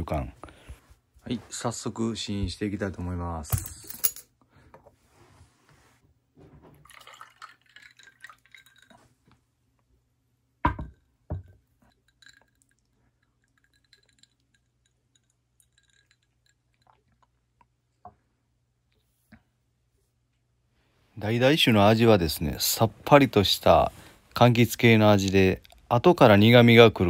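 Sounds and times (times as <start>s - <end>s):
ice clinking: 6.8s - 9.0s, 10.8s - 17.4s
liquid pouring over ice: 6.8s - 9.0s, 11.9s - 17.3s
glass knocks: 10.6s - 11.6s.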